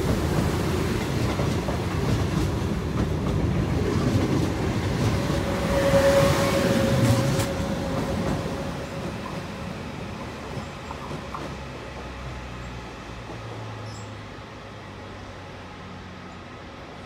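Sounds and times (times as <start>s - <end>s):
electric train pulling away: 4.2s - 16.0s.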